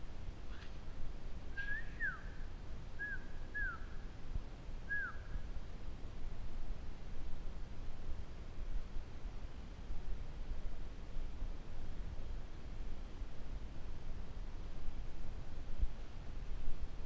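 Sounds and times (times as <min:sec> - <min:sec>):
whistled notes echoing: 0:01.6 - 0:02.3, 0:03.0 - 0:03.8.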